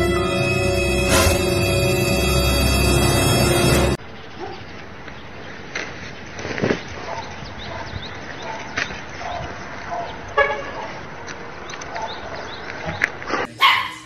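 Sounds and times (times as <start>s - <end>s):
vehicle horn toot: 0.0s - 3.8s, 10.4s - 10.8s
loud brief noise: 0.1s - 2.3s
outdoor background noise: 4.0s - 14.0s.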